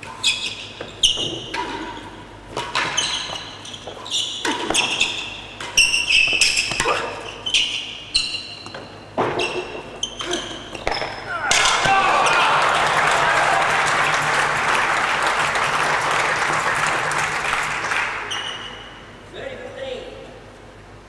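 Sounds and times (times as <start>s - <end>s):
ball struck by rackets: 4.4s - 7.0s, 10.7s - 11.9s
ball banging off walls: 10.7s - 12.1s.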